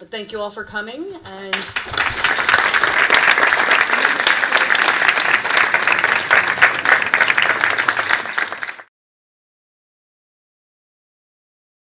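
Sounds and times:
audience applauding: 1.5 - 8.9.

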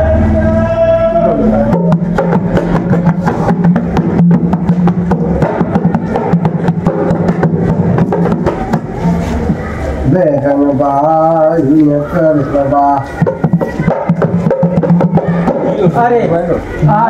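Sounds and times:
barrel drum played fast by hand: 1.6 - 9.1, 13.2 - 16.2.

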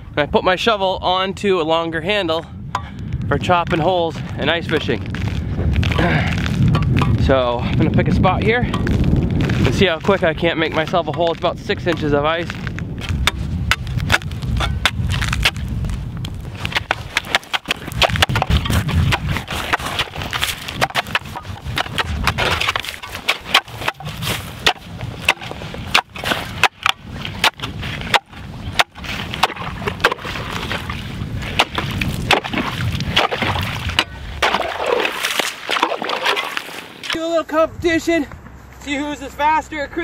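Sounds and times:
shovel blade chopping ice: 16.7 - 36.7.

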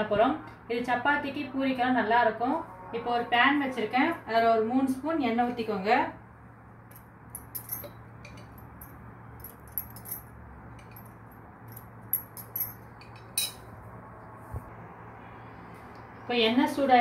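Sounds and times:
light ticks and clinks: 6.9 - 13.6.

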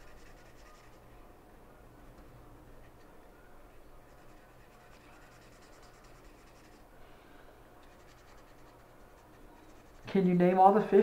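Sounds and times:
marker scratching on paper: 0.0 - 1.1, 4.0 - 6.9, 7.8 - 10.1.

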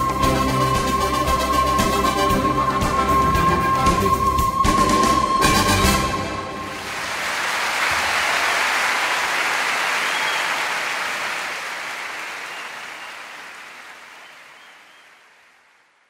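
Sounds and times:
audience applauding: 4.8 - 16.0.

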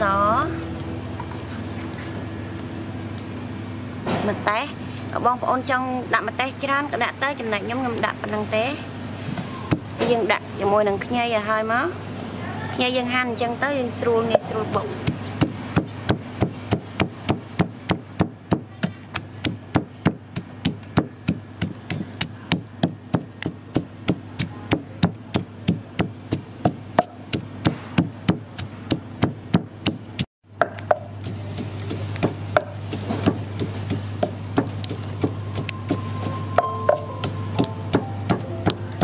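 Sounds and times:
steady low hum: 0.0 - 39.0
pestle pounding in wooden mortar: 9.7 - 10.1, 14.3 - 39.0.

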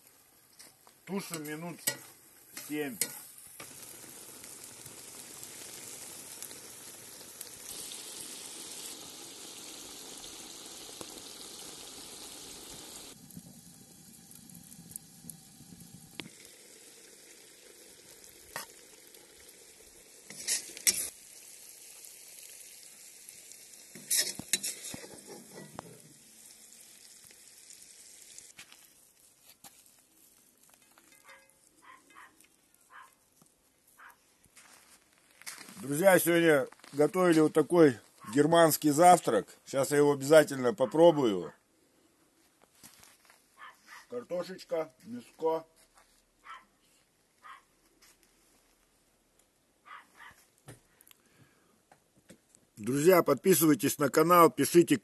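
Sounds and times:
food sizzling in a pot: 0.0 - 29.9.

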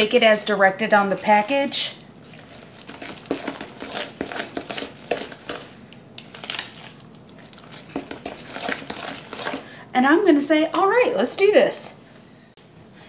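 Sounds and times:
spoon scraping a mixing bowl: 2.3 - 6.9, 7.5 - 9.7.

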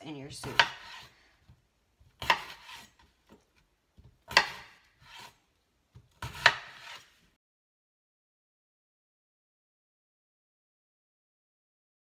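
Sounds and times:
knife striking cutting board: 0.4 - 1.1, 2.1 - 3.0, 4.0 - 7.1
soft rub of knife: 2.3 - 3.0, 5.0 - 5.4, 6.2 - 7.4.

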